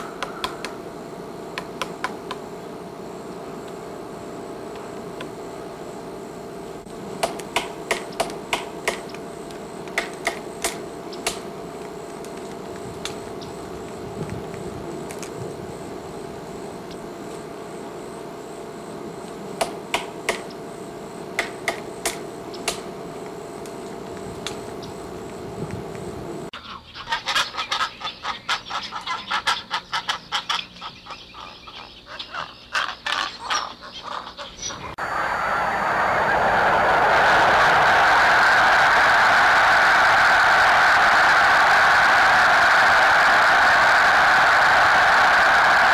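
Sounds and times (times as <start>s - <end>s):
steady background hiss: 0.0s - 45.9s
pelican chick calling: 26.6s - 35.0s.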